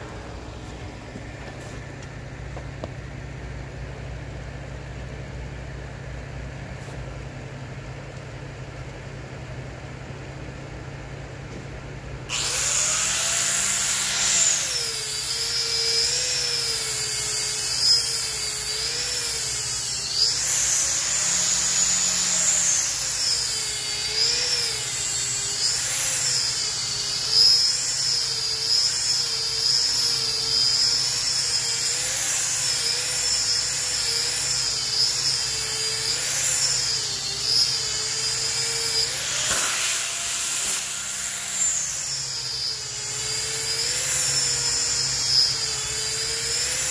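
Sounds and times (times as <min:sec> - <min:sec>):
disc sander whining on wood: 0:12.3 - 0:46.9.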